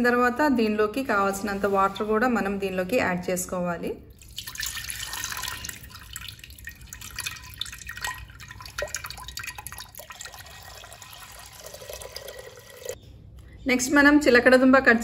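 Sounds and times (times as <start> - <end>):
juice splashing and dripping: 4.1 - 13.0
water pouring from jug: 4.1 - 13.0.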